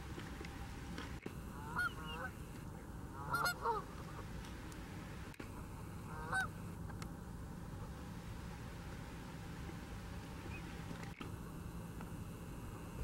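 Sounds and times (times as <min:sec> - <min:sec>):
low background rumble: 0:00.0 - 0:13.0
waterfowl calling: 0:01.5 - 0:02.5, 0:03.1 - 0:04.3, 0:05.6 - 0:06.6.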